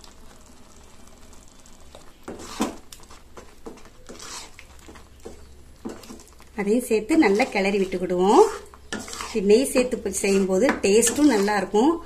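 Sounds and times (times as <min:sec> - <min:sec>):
spatula scraping a pan: 0:02.2 - 0:12.0.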